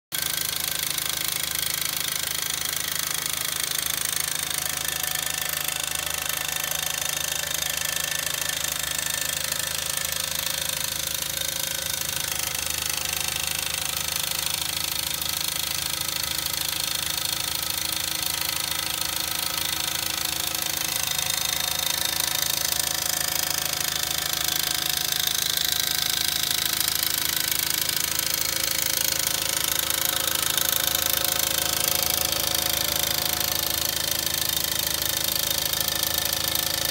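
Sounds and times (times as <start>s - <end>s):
model steam engine knocking: 0.1s - 36.9s.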